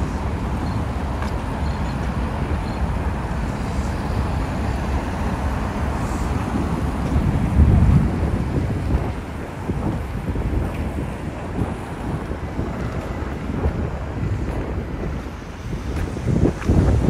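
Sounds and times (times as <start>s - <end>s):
cars driving past: 0.0s - 17.0s
low rumble: 3.6s - 10.7s.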